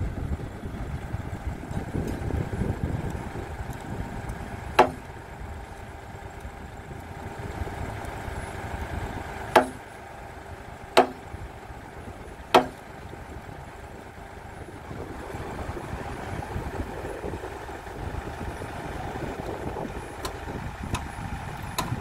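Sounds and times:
hammer striking wooden beam: 4.8 - 5.0, 9.5 - 9.8, 11.0 - 11.2, 12.5 - 12.8.

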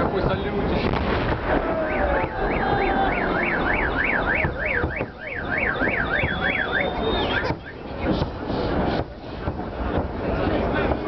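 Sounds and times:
crowd noise: 0.0 - 11.0
fireworks rumbling and banging: 0.0 - 11.0
car alarm siren wailing: 1.6 - 8.1.

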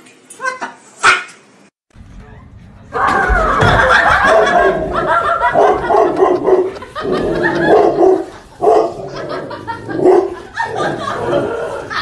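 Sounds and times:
large dog barking: 4.2 - 11.4.

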